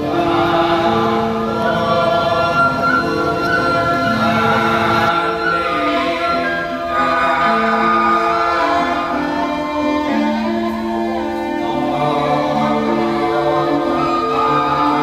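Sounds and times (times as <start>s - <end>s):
choir singing held notes: 0.0s - 15.0s.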